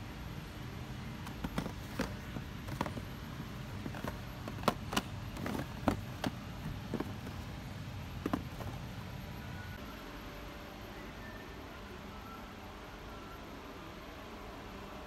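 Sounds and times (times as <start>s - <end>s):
low background rumble: 0.0s - 10.9s
plastic packs knocking and clicking: 1.2s - 7.5s, 8.2s - 8.8s.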